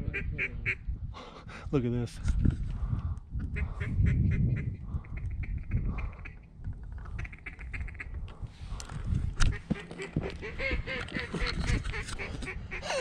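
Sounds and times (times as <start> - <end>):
duck quacking: 0.0 - 0.8, 3.6 - 6.4, 7.1 - 8.1, 9.5 - 13.0.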